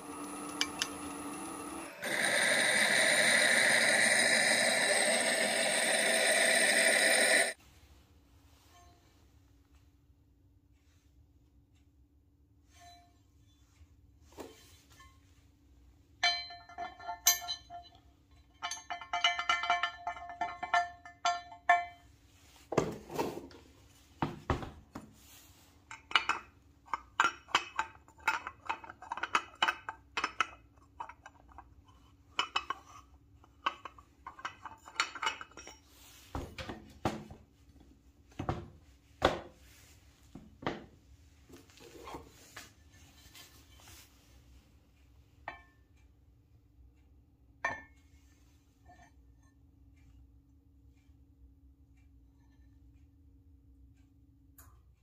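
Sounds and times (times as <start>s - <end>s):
metal parts clinking and knocking: 16.2s - 22.0s, 25.9s - 31.6s, 32.3s - 35.9s.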